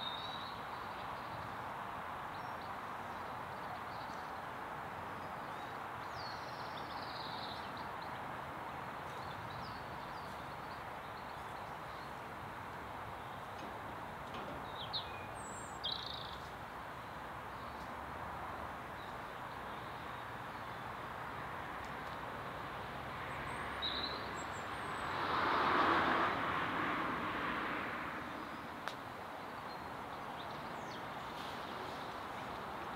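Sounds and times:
birds chirping: 5.2 - 22.0, 28.3 - 32.9.

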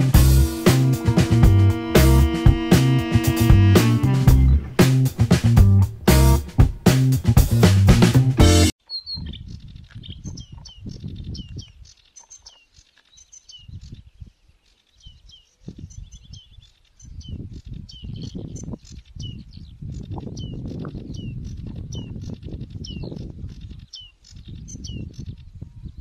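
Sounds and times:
bird singing chirps: 8.8 - 26.0.

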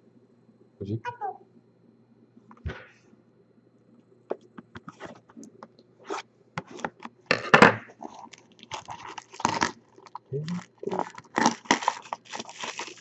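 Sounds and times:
plastic wrap tearing: 8.0 - 13.0.

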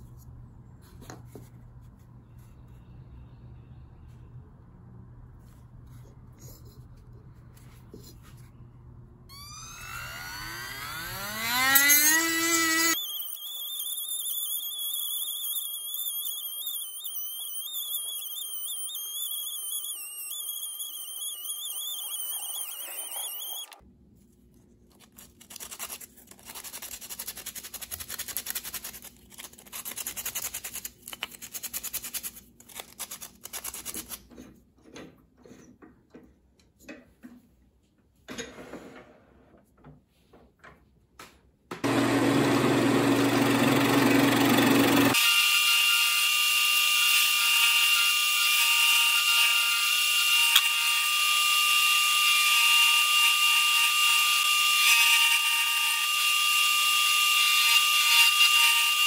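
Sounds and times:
rotary tool grinding wood: 9.3 - 23.8, 41.9 - 45.4.

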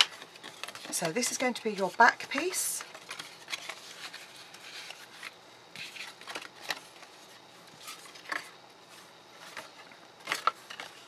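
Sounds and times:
card rustling and tapping: 0.0 - 8.5.

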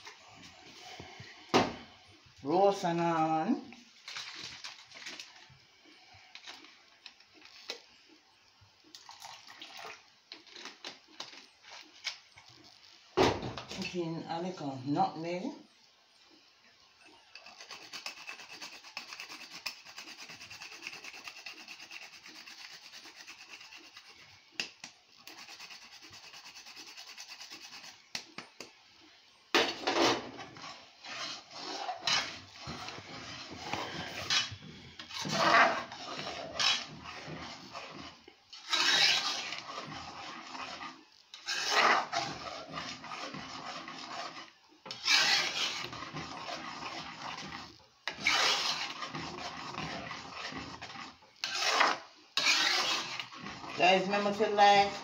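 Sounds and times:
metal spoon scraping pot: 29.6 - 55.0.

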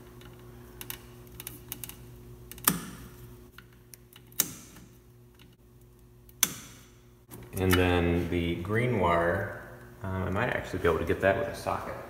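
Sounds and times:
low steady hum: 0.0 - 12.0
wire cutters snapping wires: 0.2 - 8.0.

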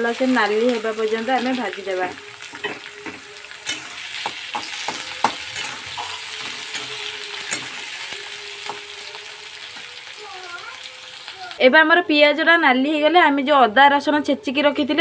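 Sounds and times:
onions sizzling in hot oil: 0.0 - 13.0
spatula scraping a pan: 2.4 - 8.8.

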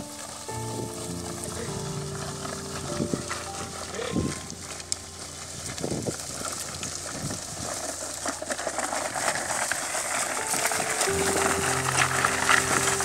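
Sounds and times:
scattered crackles: 0.0 - 13.0
wind hiss on microphone: 5.4 - 7.8.

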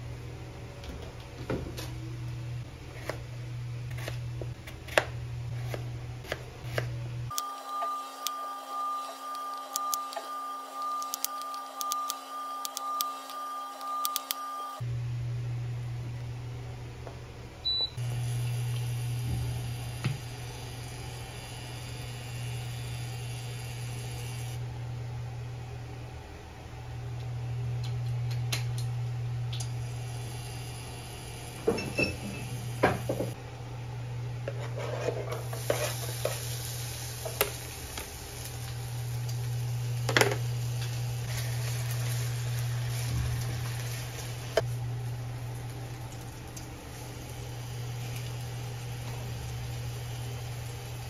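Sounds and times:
steady low hum: 0.0 - 51.0
knife chopping on plastic board: 3.9 - 6.9
steady mechanical whine: 5.2 - 27.5.

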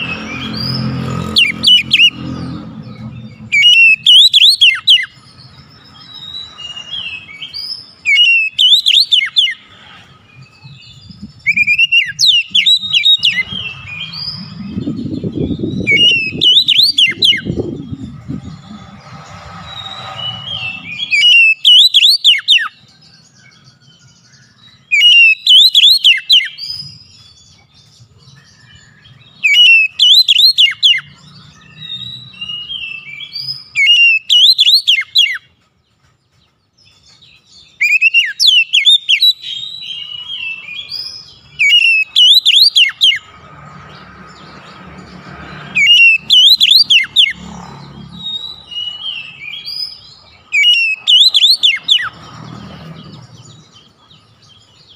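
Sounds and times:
bird singing whistled phrases: 3.5 - 5.2, 5.8 - 9.6, 10.9 - 18.1, 19.7 - 22.8, 24.9 - 27.4, 28.4 - 35.5, 37.6 - 43.2, 45.8 - 47.4, 48.2 - 52.2.

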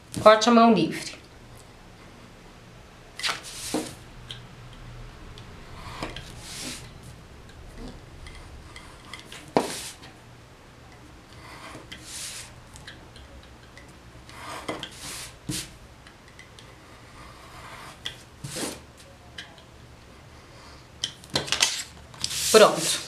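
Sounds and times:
papery swishes: 3.2 - 4.0.

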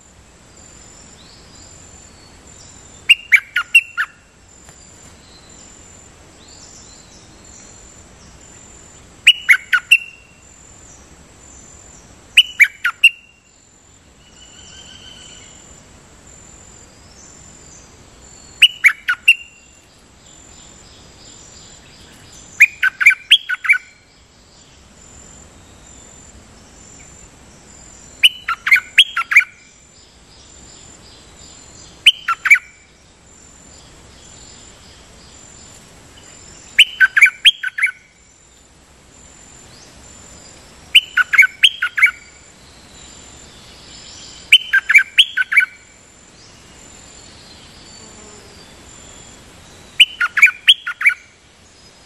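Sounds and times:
faint insect drone: 0.0 - 52.0
bird calling clear notes: 3.0 - 4.4, 9.2 - 10.4, 12.4 - 13.6, 18.4 - 24.2, 27.9 - 29.8, 31.9 - 33.0, 36.2 - 38.3, 40.9 - 46.7, 49.9 - 51.4.

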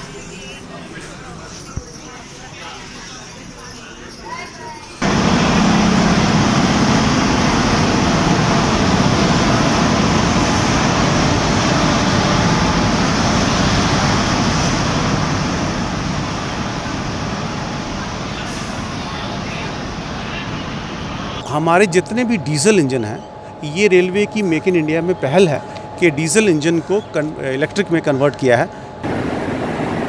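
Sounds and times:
locomotive rumble and hiss: 5.0 - 22.6, 23.3 - 30.0.

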